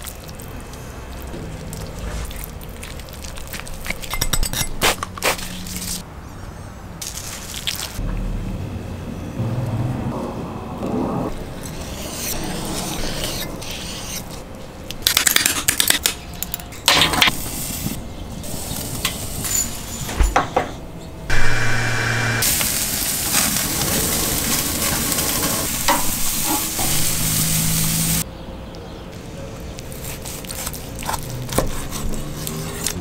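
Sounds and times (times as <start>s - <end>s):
steak sizzling on a grill: 22.4s - 28.2s.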